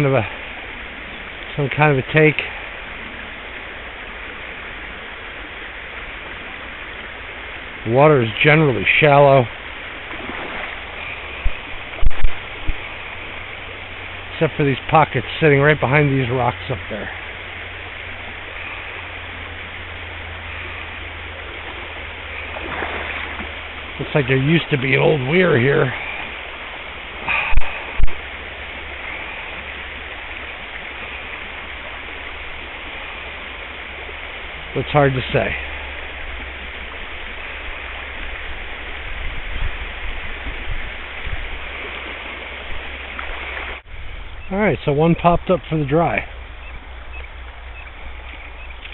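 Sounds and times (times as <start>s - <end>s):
river water running over rocks: 0.0s - 48.9s
low thumps: 10.0s - 13.2s.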